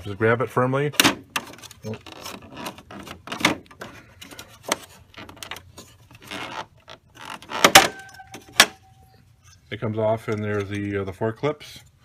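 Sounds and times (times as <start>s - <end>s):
rubbing and scraping: 1.3s - 9.6s.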